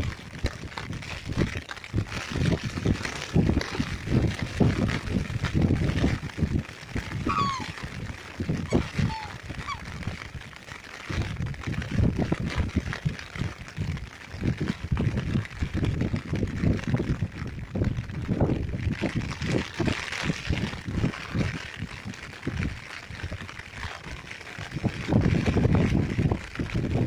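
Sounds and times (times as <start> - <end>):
rain falling on water: 0.0 - 27.0
wind buffeting microphone: 0.0 - 27.0
swans whistling calls: 7.1 - 7.9, 8.7 - 9.9.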